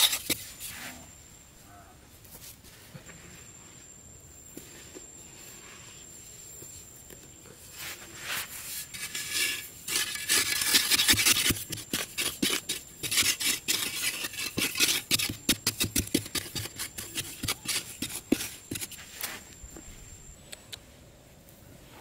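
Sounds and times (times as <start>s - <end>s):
metal bar scraping sandy soil: 0.0s - 1.0s, 7.8s - 19.5s.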